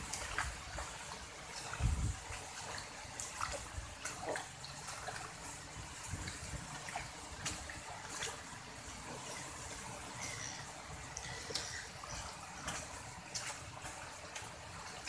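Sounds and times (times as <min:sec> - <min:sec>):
rain hiss: 0:00.0 - 0:04.6, 0:05.2 - 0:14.8
wind rumbling on microphone: 0:01.6 - 0:02.5, 0:05.7 - 0:07.8
drips and taps: 0:09.2 - 0:15.0.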